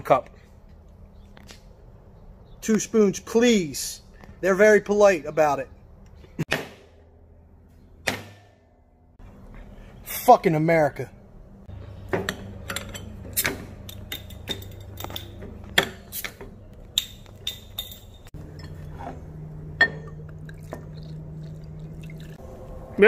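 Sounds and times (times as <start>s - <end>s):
glass bottles clinking: 12.1s - 22.4s
bottle caps prying off: 12.2s - 21.2s
beer pouring into glasses: 20.2s - 22.4s.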